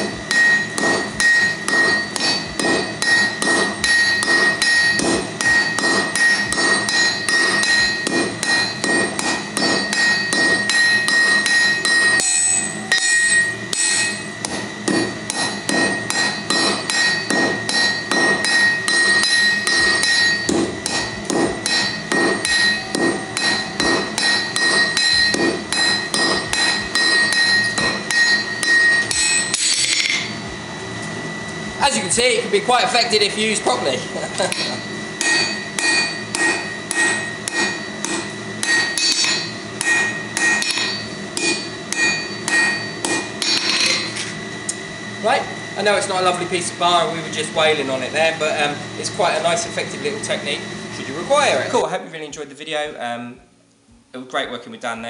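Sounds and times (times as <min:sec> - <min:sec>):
hammer blows on anvil: 0:00.0 - 0:30.4, 0:32.7 - 0:44.4.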